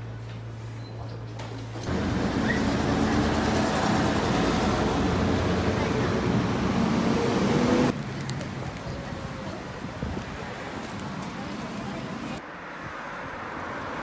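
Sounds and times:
vehicle passing close by: 1.9s - 8.0s.

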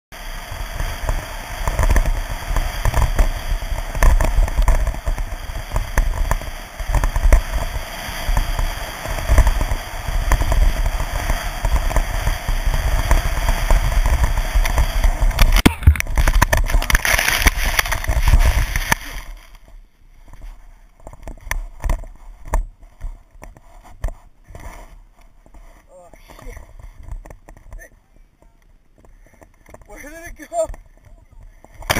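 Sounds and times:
skis scraping over packed snow: 0.1s - 31.9s
tumbling snow noise: 0.1s - 31.9s
sharp crack: 8.3s - 19.6s
rustles and knocks: 8.3s - 31.9s.

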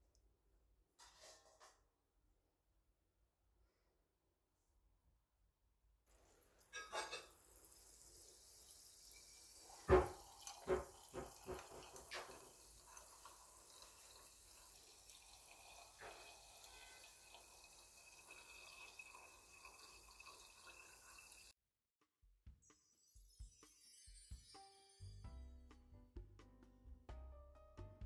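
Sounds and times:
trickling pour with fizzing: 6.2s - 21.6s.

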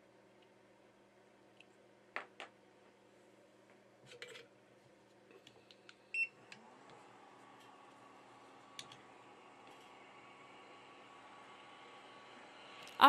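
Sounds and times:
fan hum: 2.7s - 13.0s.

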